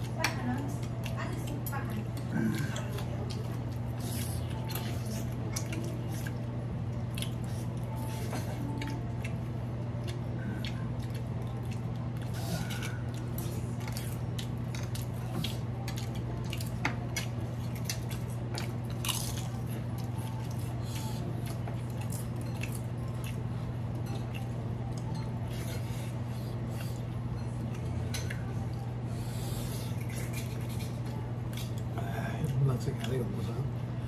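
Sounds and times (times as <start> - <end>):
people chewing and crunching wafers: 0.0 - 34.0
steady low hum: 0.0 - 34.0.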